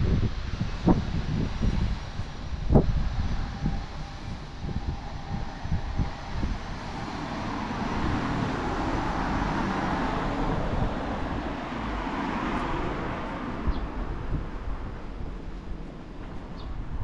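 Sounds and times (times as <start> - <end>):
vehicle passing by: 2.8 - 17.0.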